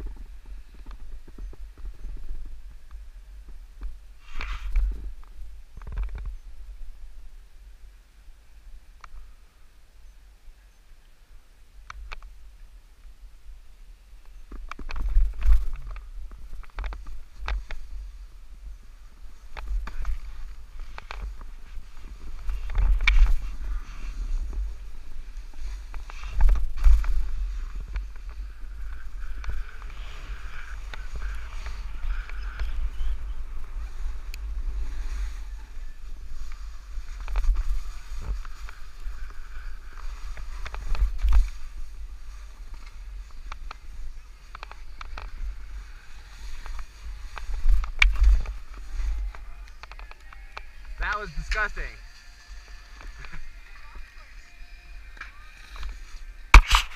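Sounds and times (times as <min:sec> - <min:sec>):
snowboard scraping over snow: 0:15.2 - 0:56.9.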